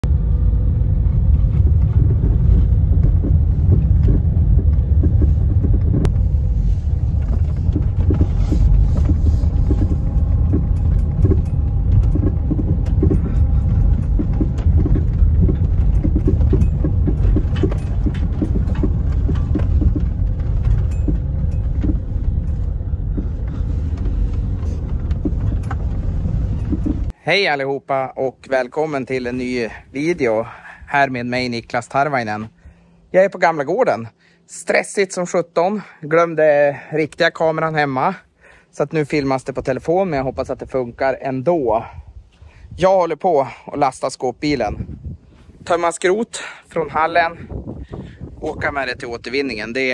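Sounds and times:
gravel crackling under wheels: 0.0 - 27.2
vehicle engine and tyres rumbling: 0.0 - 27.2, 44.5 - 49.9.

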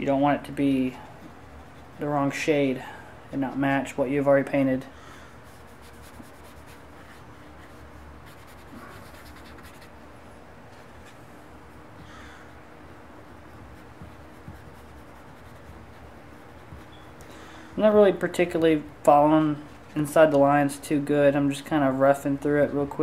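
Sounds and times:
room hiss and hum: 0.0 - 23.0
paintbrush brushing on paper: 5.4 - 10.0, 13.2 - 17.2.

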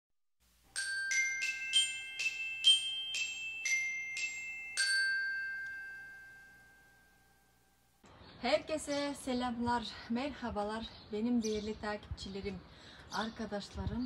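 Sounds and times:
bell-like jingle notes: 0.8 - 7.8.

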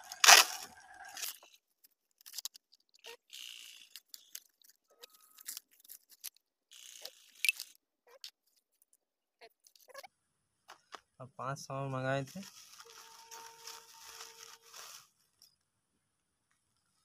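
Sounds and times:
plastic packaging crinkling: 0.0 - 1.5, 12.2 - 15.4
small plastic clicks: 1.2 - 9.0.

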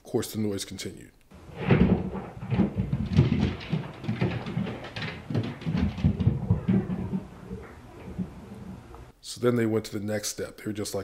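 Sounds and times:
thuds through the ceiling: 1.4 - 9.1.

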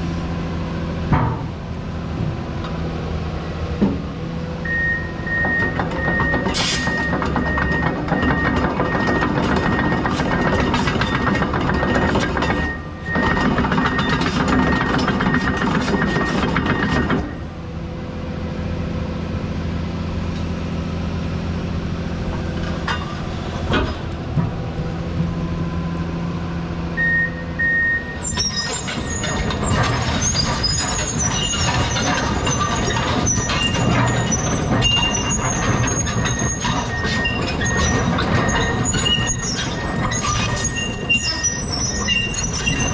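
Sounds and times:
excavator diesel engine running: 0.0 - 42.9
travel alarm beeping: 4.6 - 9.2, 27.0 - 28.2
steel tracks clattering: 5.4 - 17.5, 28.2 - 42.9.

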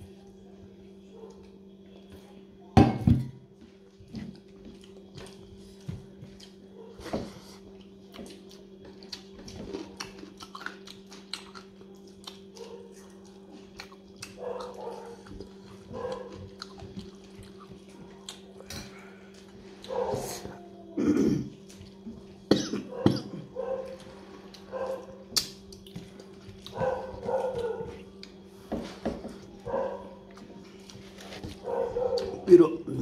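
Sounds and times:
steady low hum: 0.0 - 33.0
man chewing and smacking: 3.9 - 7.0, 7.6 - 18.7, 23.6 - 28.5.

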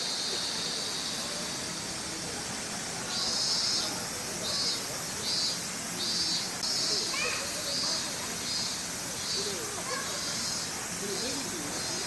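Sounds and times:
faint voices murmuring: 0.0 - 12.0
high-pitched insect buzzing: 3.1 - 12.0.

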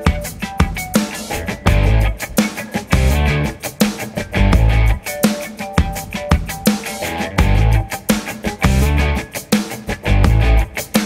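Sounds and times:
drum kit beat: 0.0 - 11.0
electric guitar: 0.0 - 11.0
heavy bass notes: 1.3 - 5.1, 7.0 - 9.3, 9.9 - 10.8.

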